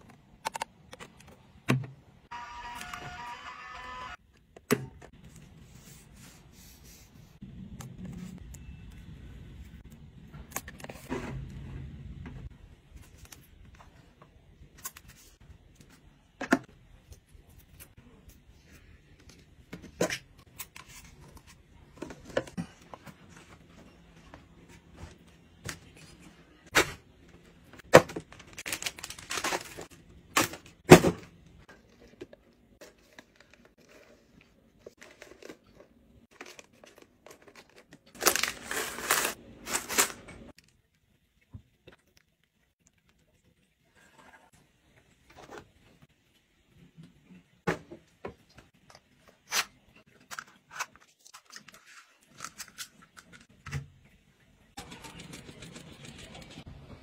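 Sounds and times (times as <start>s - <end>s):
packaging rustling and tearing: 28.0s - 30.6s, 34.9s - 40.7s.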